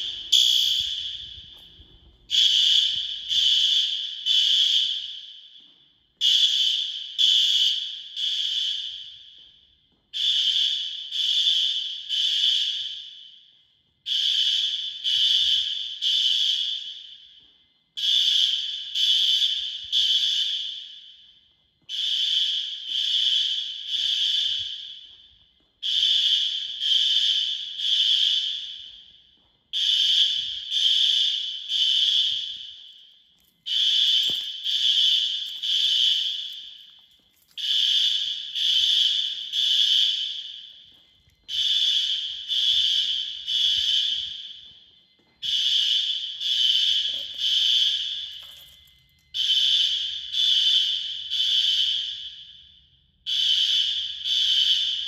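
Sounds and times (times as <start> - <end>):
fire alarm horn honks: 33.7 - 44.7, 45.4 - 55.0.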